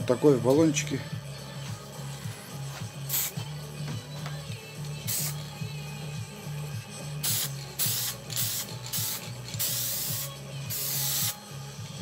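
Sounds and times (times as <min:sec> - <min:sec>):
spray can hissing: 0:03.1 - 0:03.4, 0:05.0 - 0:05.5, 0:07.2 - 0:11.4.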